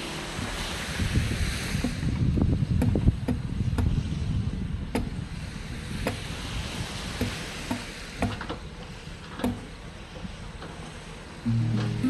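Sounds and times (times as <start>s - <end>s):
wind on microphone: 0.0s - 8.5s
waves washing onto sand: 0.0s - 12.0s.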